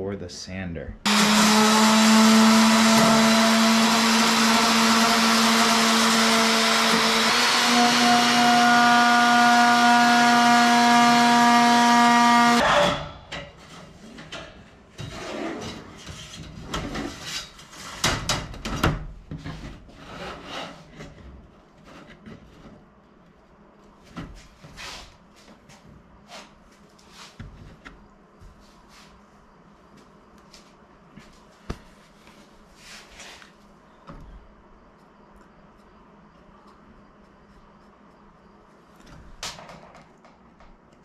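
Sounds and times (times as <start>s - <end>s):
electric orbital sander on metal: 1.1s - 12.6s.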